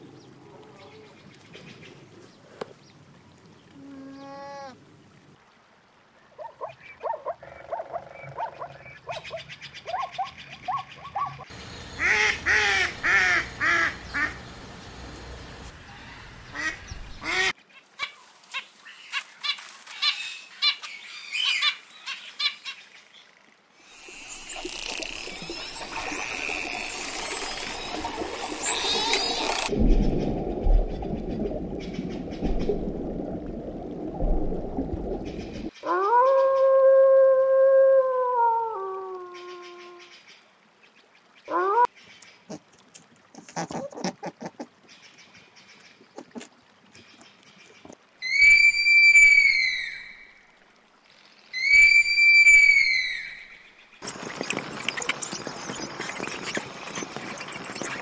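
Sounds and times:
water splashing: 23.8 - 35.8, 54.0 - 58.0
dolphins whistling and chirping: 23.9 - 29.7, 48.2 - 50.2, 51.6 - 58.0
sloth high whistling call: 48.2 - 50.3, 51.6 - 53.6.

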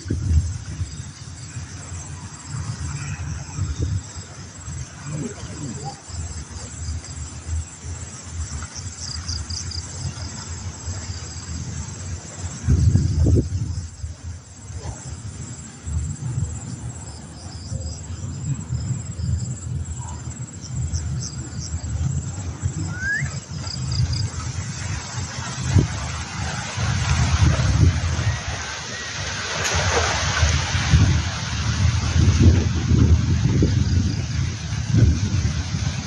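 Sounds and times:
insects chirping in trills: 0.0 - 36.0
wind rumble on microphone: 0.0 - 36.0.

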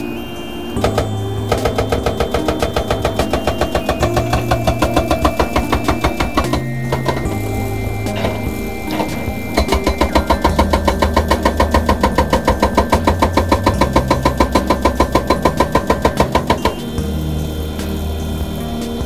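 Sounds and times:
excavator engine running: 0.0 - 19.0
hydraulic rock breaker hammering: 0.8 - 17.2.

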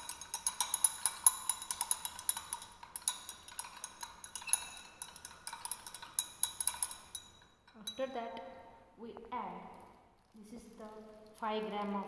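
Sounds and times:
glass rod clinking in beaker: 0.0 - 8.8.

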